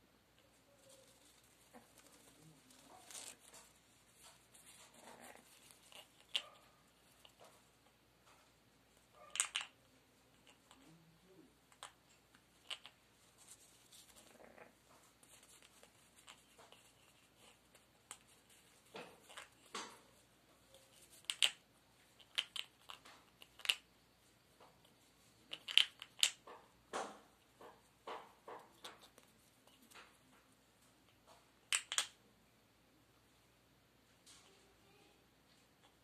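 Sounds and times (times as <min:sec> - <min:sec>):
parrot chewing and tearing paper: 0:00.8 - 0:07.6.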